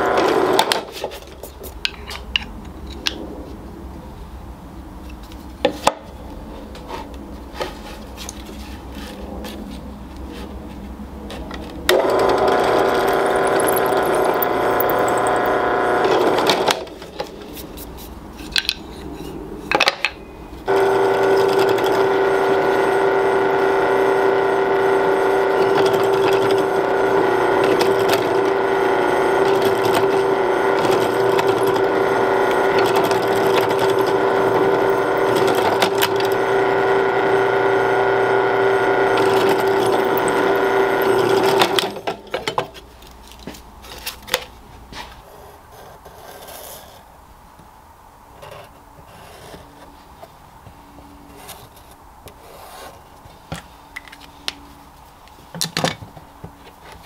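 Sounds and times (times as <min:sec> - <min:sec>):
drill press motor humming: 0:00.0 - 0:00.8, 0:11.9 - 0:16.8, 0:20.7 - 0:42.2.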